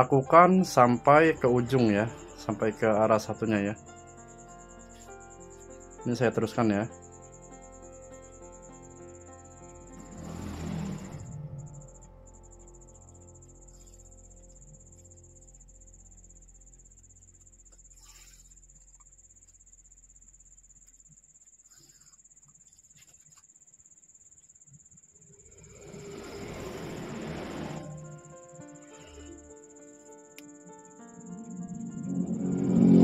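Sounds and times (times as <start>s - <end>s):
faint background music: 0.0s - 20.8s
high-pitched insect trill: 0.0s - 33.0s.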